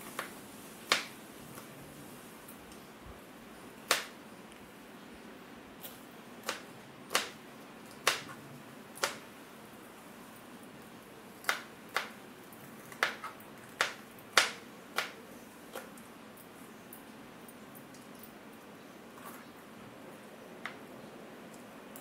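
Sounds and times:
knife chopping on plastic board: 6.4s - 8.4s, 9.0s - 9.2s, 11.4s - 12.1s, 12.9s - 15.2s.

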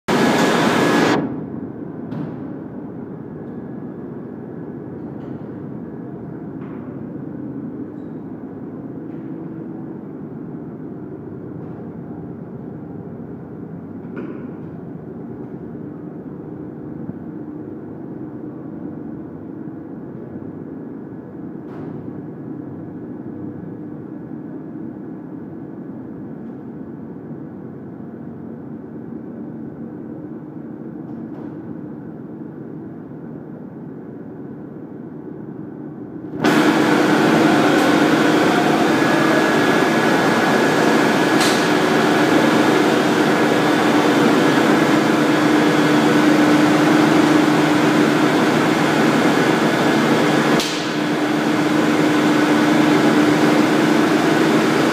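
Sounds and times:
heavy machinery droning: 0.1s - 1.5s, 36.3s - 54.9s.

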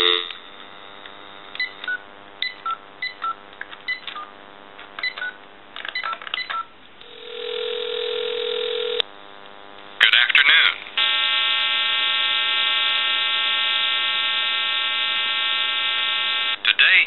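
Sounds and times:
telephone ringback tone: 0.0s - 0.4s, 6.0s - 9.0s.

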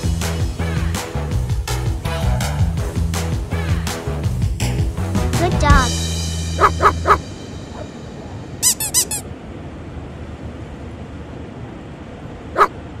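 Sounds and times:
high-pitched squeaks: 8.6s - 9.2s.

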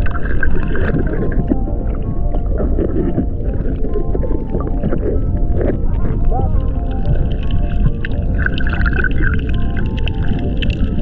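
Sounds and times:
crackling clicks: 0.0s - 11.0s
muffled underwater rumble: 0.0s - 11.0s.

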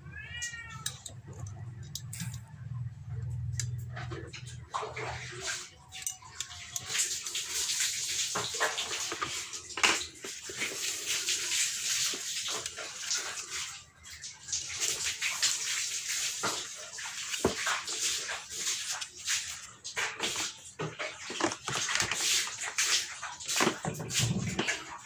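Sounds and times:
tools rustling in plastic case: 21.2s - 22.9s.

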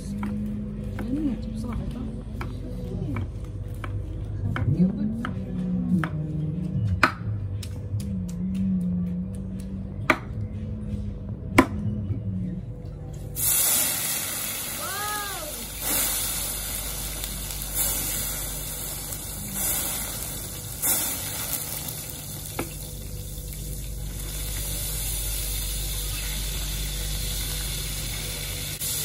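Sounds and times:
steak sizzling on hot plate: 13.4s - 29.0s.

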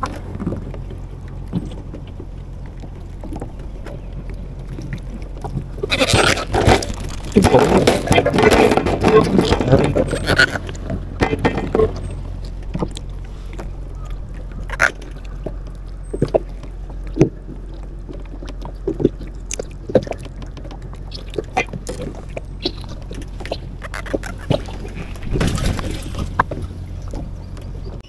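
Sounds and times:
low hum: 0.0s - 28.0s
water noise: 0.0s - 28.0s
fishing gear clicks and knocks: 6.4s - 28.0s.

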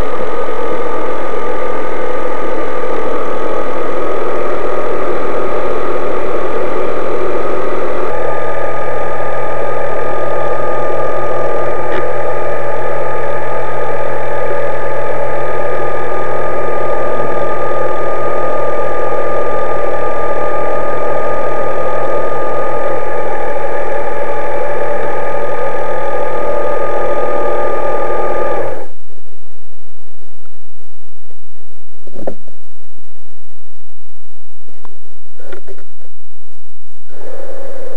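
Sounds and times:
electric motor whine: 0.0s - 29.1s, 37.0s - 37.9s.

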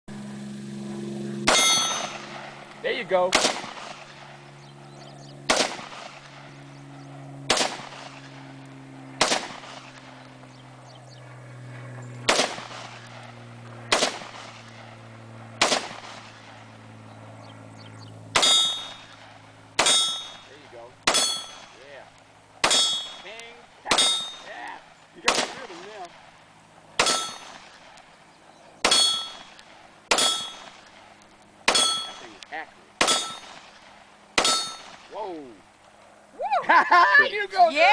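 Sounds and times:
rifle shots: 1.4s - 4.4s, 5.4s - 6.5s, 7.4s - 8.6s, 9.2s - 10.2s, 12.2s - 16.6s, 18.3s - 21.8s, 22.6s - 24.6s, 25.2s - 28.1s, 28.8s - 32.4s, 33.0s - 35.1s
bullet pinging off metal tank: 1.5s - 2.2s, 18.4s - 19.1s, 19.8s - 21.8s, 22.6s - 23.2s, 23.9s - 24.5s, 27.0s - 27.6s, 28.8s - 29.5s, 30.1s - 30.8s, 31.7s - 32.3s, 33.0s - 33.6s, 34.4s - 35.0s.

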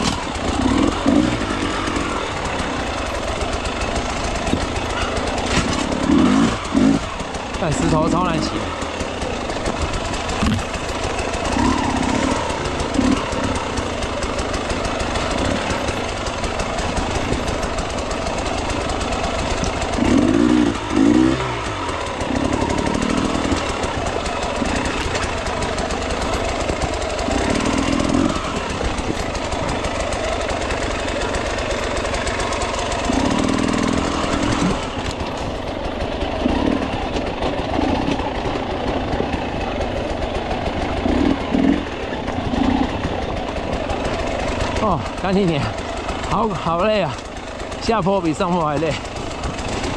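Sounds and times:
dirt bike engine revving: 0.0s - 49.9s.

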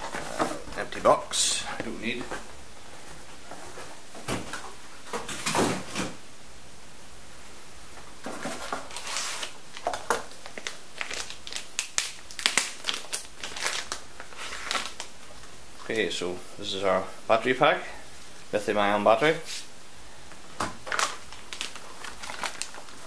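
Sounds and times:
cardboard packaging handled: 8.2s - 15.5s, 20.6s - 23.0s
plastic bag crinkling: 8.3s - 16.1s, 20.5s - 23.0s.

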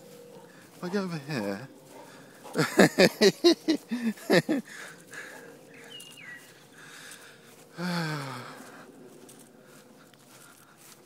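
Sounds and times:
faint bird chirp: 4.9s - 7.2s.

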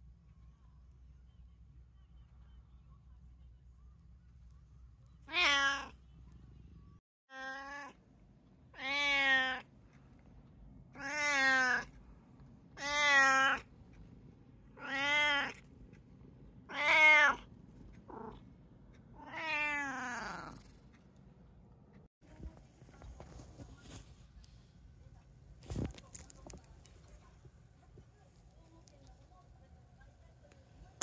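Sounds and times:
cat meowing loudly: 5.3s - 6.0s, 7.3s - 8.0s, 8.8s - 9.6s, 11.0s - 11.9s, 12.8s - 13.6s, 14.8s - 15.6s, 16.7s - 17.4s.

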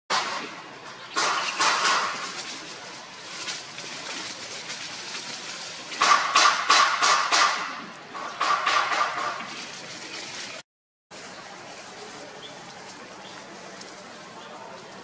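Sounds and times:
puppy rustling undergrowth: 1.2s - 6.2s, 9.2s - 15.0s.

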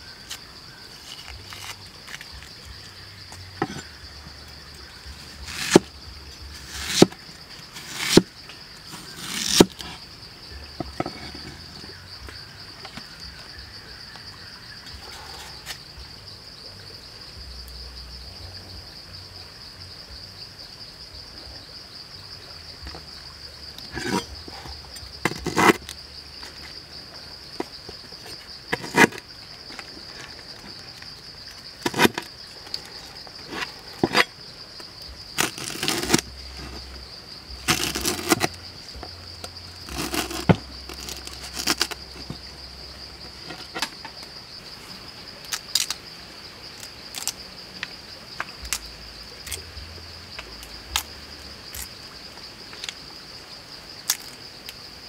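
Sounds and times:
cleaver chopping on wooden board: 5.5s - 5.9s, 6.7s - 7.2s, 7.8s - 8.3s.

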